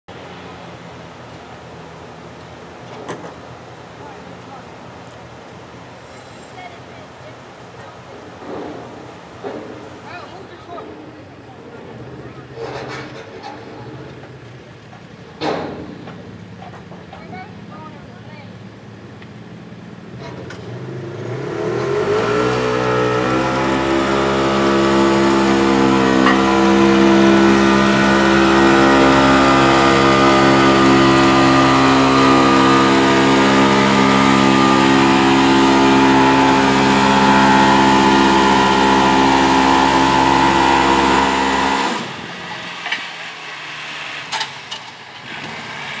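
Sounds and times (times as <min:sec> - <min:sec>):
utv engine revving: 0:18.9 - 0:46.0.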